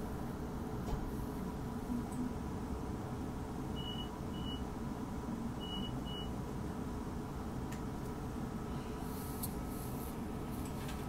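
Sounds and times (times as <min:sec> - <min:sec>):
low hum of standing train: 0:00.0 - 0:11.0
train door warning beeps: 0:03.8 - 0:04.7, 0:05.6 - 0:06.4.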